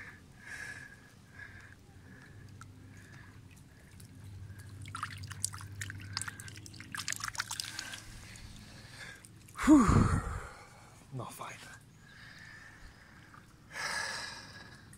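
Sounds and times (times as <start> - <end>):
water splashing and dripping: 2.1 - 9.6
gurgling splash: 4.5 - 8.5.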